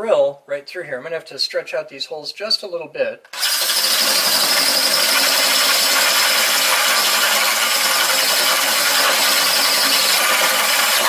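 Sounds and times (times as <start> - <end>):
drill bit grinding steel: 3.3 - 11.0
drill motor running under load: 3.3 - 11.0.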